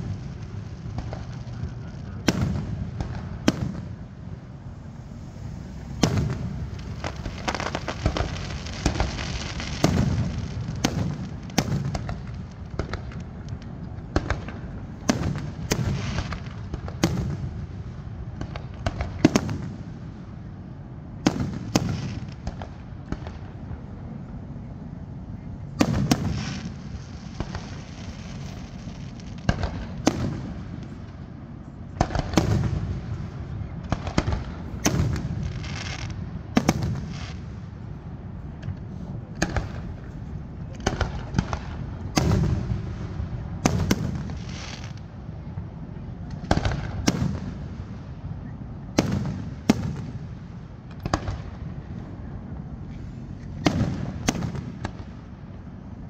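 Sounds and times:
fireworks bangs: 0:00.0 - 0:20.1, 0:21.2 - 0:23.7, 0:25.7 - 0:37.9, 0:38.5 - 0:48.2, 0:48.9 - 0:51.9, 0:53.5 - 0:55.5
low rumbling echo: 0:00.0 - 0:44.4.

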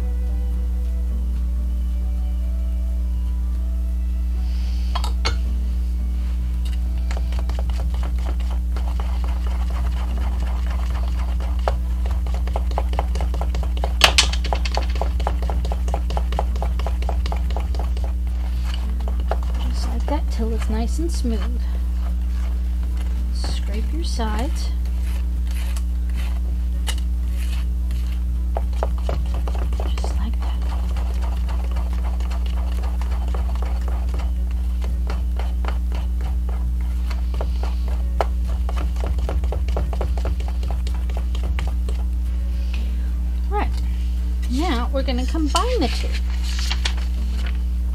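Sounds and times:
steady low hum: 0:00.0 - 0:47.9
utensil stirring in metal bowl: 0:07.0 - 0:42.2, 0:44.5 - 0:47.0.

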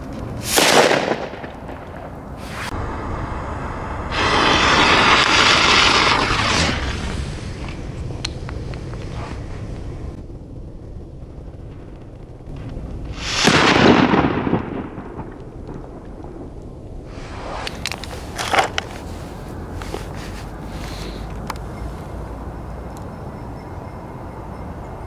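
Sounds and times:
firecracker bang: 0:00.4 - 0:02.8, 0:04.1 - 0:07.2, 0:12.5 - 0:16.0
match cracker hissing: 0:02.4 - 0:02.8, 0:04.1 - 0:07.8, 0:17.1 - 0:21.4.

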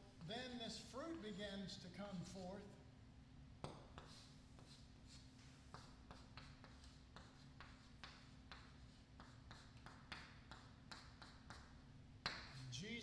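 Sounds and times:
low electrical hum: 0:00.0 - 0:13.0
chalk writing on chalkboard: 0:03.6 - 0:12.8.

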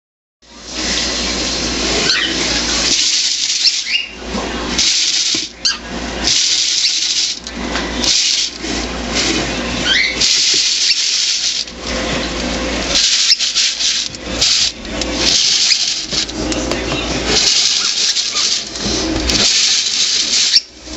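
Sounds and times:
popcorn kernels rattling in plastic jar: 0:02.8 - 0:04.1, 0:04.8 - 0:05.6, 0:06.2 - 0:08.6, 0:10.2 - 0:11.8, 0:12.9 - 0:20.9
cockatiel squeaking: 0:03.6 - 0:04.2, 0:09.8 - 0:11.1.

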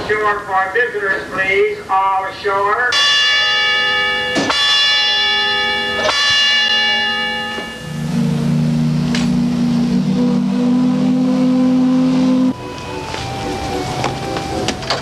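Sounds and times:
ship's bell ringing: 0:02.9 - 0:15.0
deep steam whistle: 0:05.8 - 0:15.0.

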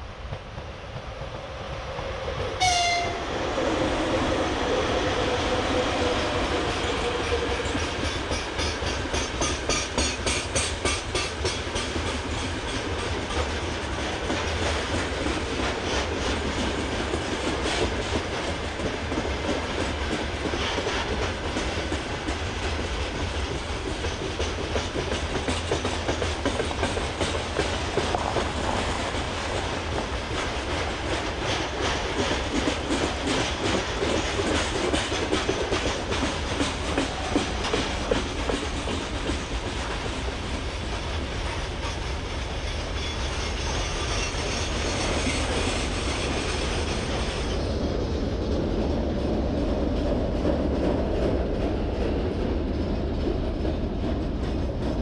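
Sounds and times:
train wheels clickety-clack: 0:00.0 - 0:55.0
locomotive horn toot: 0:02.6 - 0:03.2.

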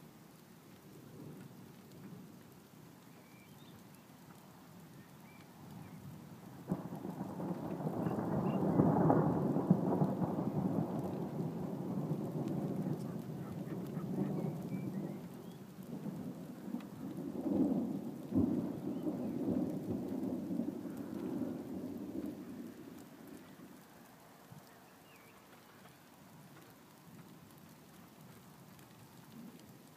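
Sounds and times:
thunder rumbling: 0:06.6 - 0:23.9
sharp thunder clap: 0:06.7 - 0:15.3.

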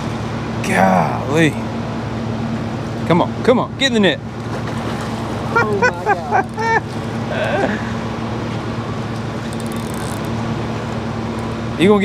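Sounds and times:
boat engine idling: 0:00.0 - 0:12.0
wind: 0:00.0 - 0:12.0
water noise: 0:04.0 - 0:11.8.

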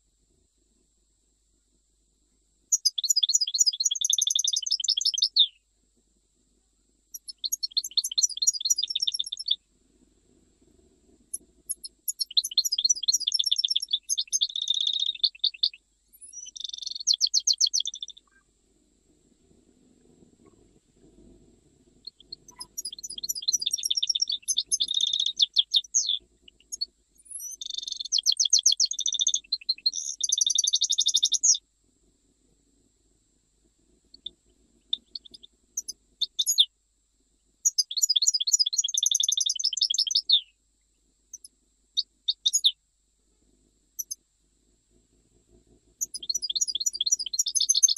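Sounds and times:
goldfinch trilling song: 0:02.7 - 0:05.6, 0:07.2 - 0:09.6, 0:11.6 - 0:18.4, 0:22.0 - 0:31.6, 0:34.9 - 0:36.7, 0:37.6 - 0:40.5, 0:41.4 - 0:42.8, 0:46.0 - 0:47.9.

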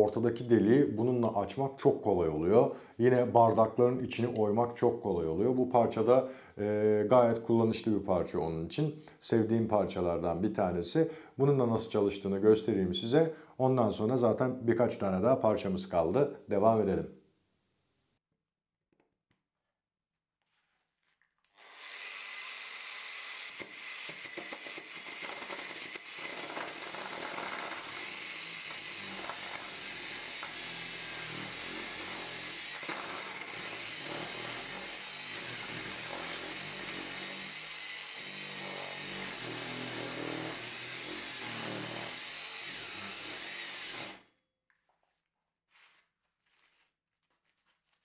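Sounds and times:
angle grinder boring into wood: 0:21.5 - 0:44.3.

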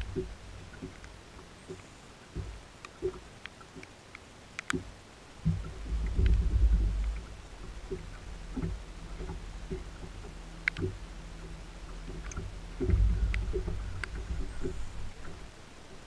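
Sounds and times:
faint ticks: 0:00.0 - 0:16.0
low rumbling surges: 0:05.3 - 0:16.0
electric boat motor humming: 0:05.8 - 0:16.0.

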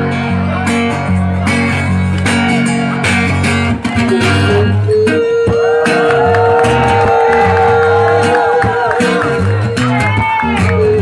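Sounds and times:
acoustic guitar strumming chords: 0:00.0 - 0:11.0.

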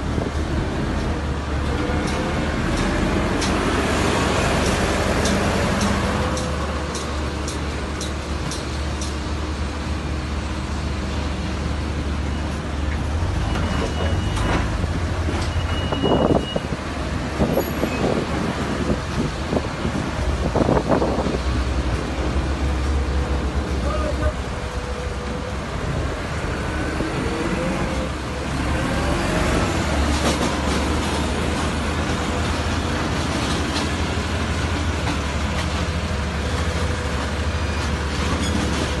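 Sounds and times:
large engine rumbling: 0:00.0 - 0:39.0.

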